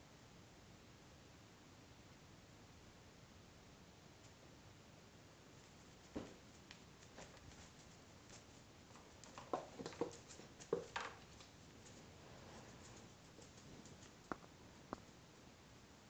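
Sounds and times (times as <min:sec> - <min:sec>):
cat paws scrabbling on wooden floor: 0:05.6 - 0:15.2.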